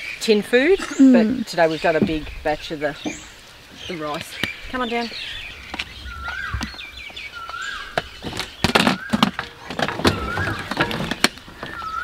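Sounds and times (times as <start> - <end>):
bird twittering: 0.0 - 12.0
bird rising call: 3.0 - 10.9, 11.6 - 12.0.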